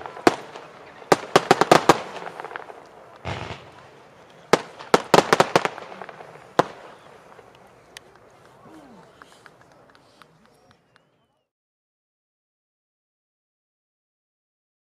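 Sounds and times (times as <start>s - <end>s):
fireworks battery popping: 0.0s - 8.5s.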